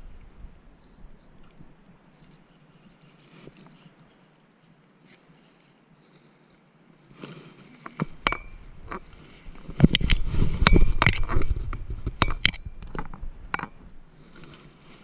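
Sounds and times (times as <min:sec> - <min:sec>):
camera handling noise: 0:07.7 - 0:13.7.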